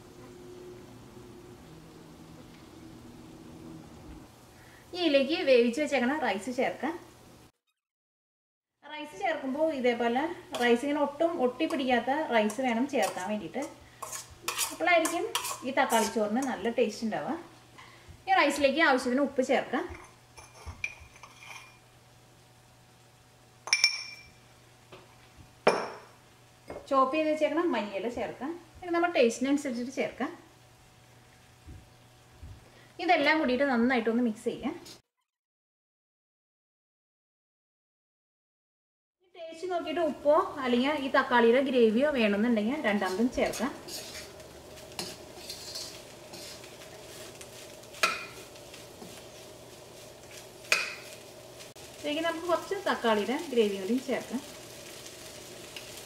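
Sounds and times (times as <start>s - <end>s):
faint steady hum: 0.0s - 7.5s
spoon stirring rice in pan: 11.6s - 16.7s, 42.8s - 56.0s
utensils clinking in a wok: 11.6s - 16.7s, 19.9s - 21.9s, 23.6s - 24.4s, 42.9s - 56.0s
spoon clanging on pan: 12.4s - 16.6s, 47.9s - 49.2s, 50.6s - 51.2s.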